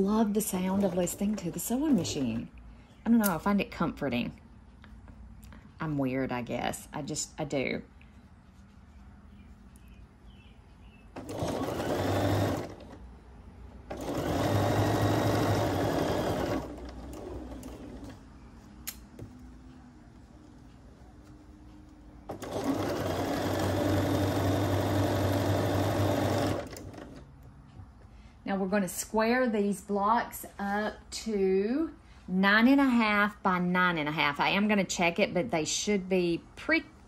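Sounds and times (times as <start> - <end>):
sewing machine stitching: 11.2 - 13.0, 13.9 - 18.2, 22.3 - 27.3
sharp click: 18.8 - 19.1.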